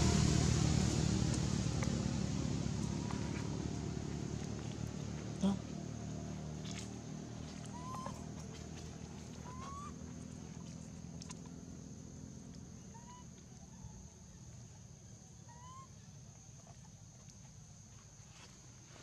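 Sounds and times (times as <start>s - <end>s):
baby monkey cooing: 7.6s - 8.3s.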